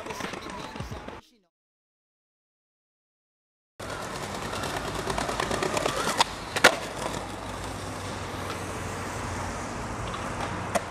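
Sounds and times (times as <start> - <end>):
skateboard clacks: 0.0 - 1.2, 3.8 - 8.7, 10.0 - 10.9
skateboard wheels rolling on concrete: 0.0 - 1.2, 3.8 - 10.9.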